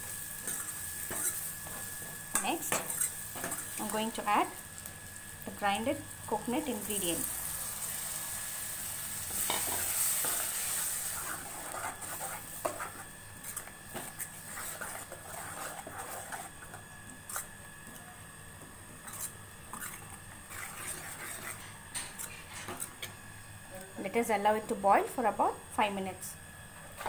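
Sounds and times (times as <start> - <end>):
paste sizzling in hot oil: 0.0 - 16.7.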